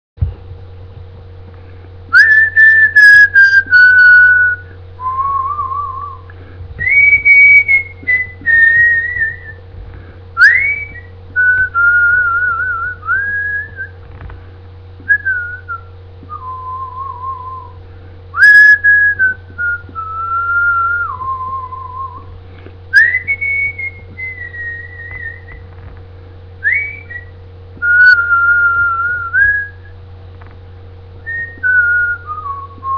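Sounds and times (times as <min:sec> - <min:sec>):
steady low hum: 0:00.2 - 0:32.9
person whistling a melody: 0:02.1 - 0:09.6, 0:10.4 - 0:14.0, 0:15.0 - 0:17.8, 0:18.4 - 0:22.3, 0:22.9 - 0:25.7, 0:26.6 - 0:29.9, 0:31.2 - 0:32.9.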